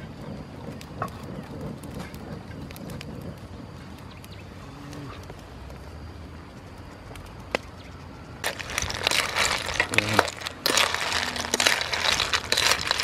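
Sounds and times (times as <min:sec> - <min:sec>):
snail shells clattering in wok: 0:08.4 - 0:13.0.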